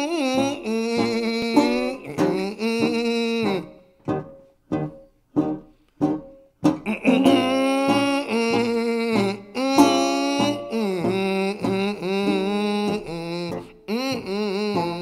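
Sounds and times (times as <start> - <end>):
country music with plucked guitar: 0.0 - 15.0
plucked string notes: 0.0 - 15.0.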